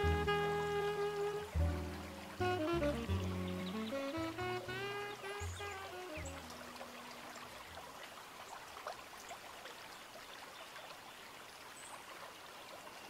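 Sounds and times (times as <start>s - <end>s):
faint water-like trickling: 0.0s - 13.0s.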